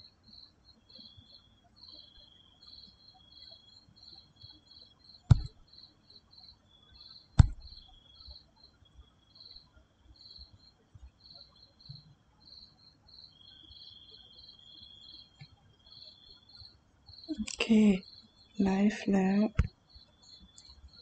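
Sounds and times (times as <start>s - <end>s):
insects chirping: 0.0s - 21.0s
sharp knocks: 5.3s - 5.6s, 7.4s - 7.8s.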